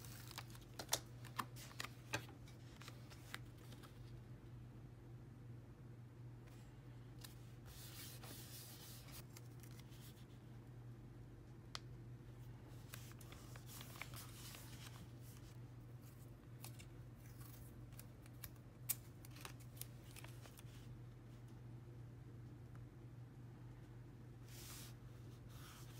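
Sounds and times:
paper rustling and crinkling: 0:00.0 - 0:04.2, 0:07.2 - 0:10.4, 0:12.8 - 0:20.9
low steady hum: 0:00.0 - 0:25.9.

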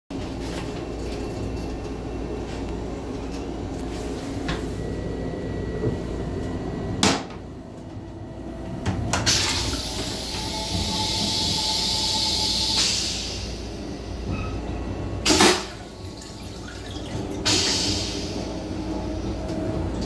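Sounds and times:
railcar low rumble: 0:00.1 - 0:20.0
toilet flushing hiss: 0:09.2 - 0:14.2, 0:15.2 - 0:19.4.

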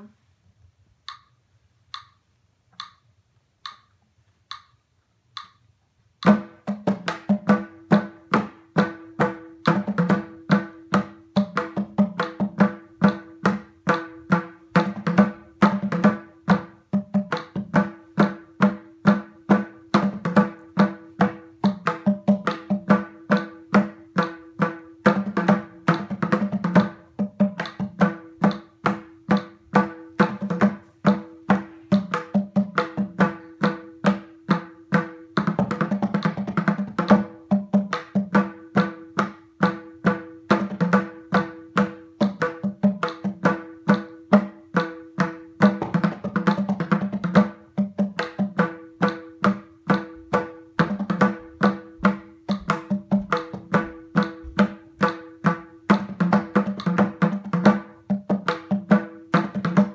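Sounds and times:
soft ticks: 0:01.0 - 0:01.3, 0:01.9 - 0:03.0, 0:03.6 - 0:04.8, 0:05.4 - 0:05.6
mridangam drumming: 0:06.2 - 0:59.9.

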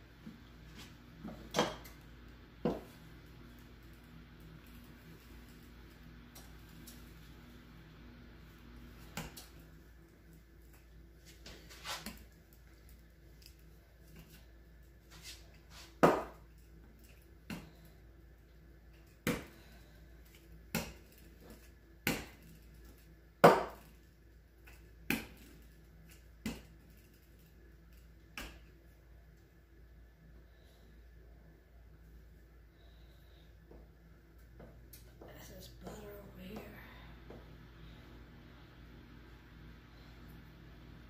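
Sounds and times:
rolling pin rolling dough: 0:00.1 - 0:29.0.

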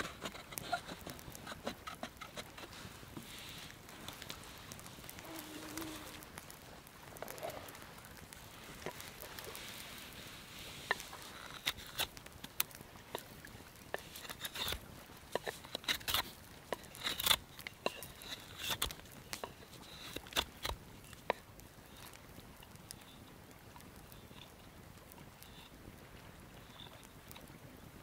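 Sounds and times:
knife scraping on sharpening stick: 0:00.0 - 0:02.7, 0:16.9 - 0:18.9.

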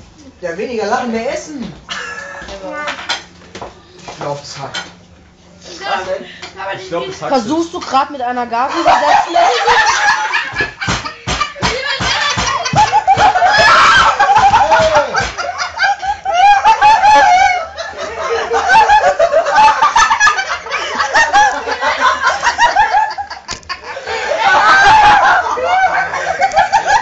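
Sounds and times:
group of people laughing: 0:08.7 - 0:27.0.

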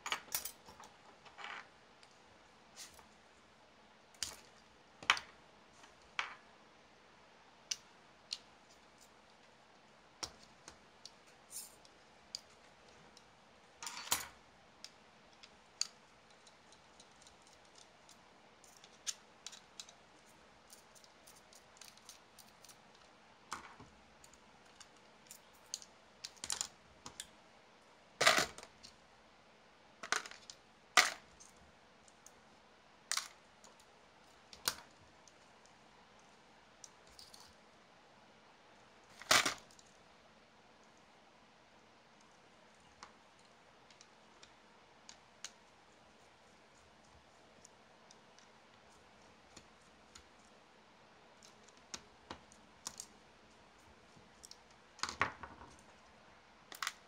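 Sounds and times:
small parts and tools clicking: 0:10.2 - 0:27.4, 0:33.1 - 0:37.6.

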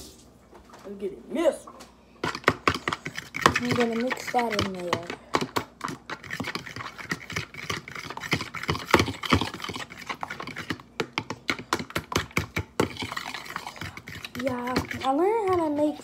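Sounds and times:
fork tapping plastic container: 0:10.4 - 0:13.0.

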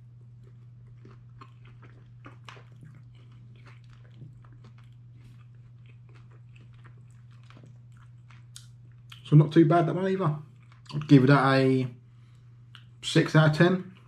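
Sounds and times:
person chewing food: 0:00.0 - 0:09.3, 0:10.4 - 0:11.3, 0:12.2 - 0:13.0
steady low hum: 0:00.0 - 0:14.0.

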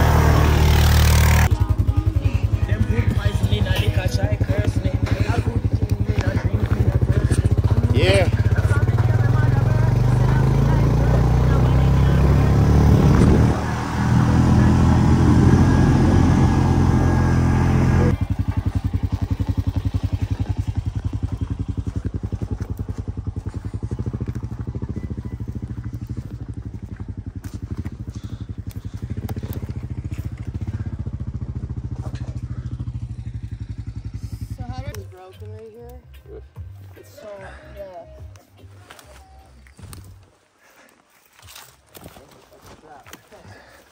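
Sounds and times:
engine idling with fast beat: 0:00.0 - 0:12.7, 0:17.1 - 0:38.4
vehicle engine running loudly: 0:00.0 - 0:35.6.

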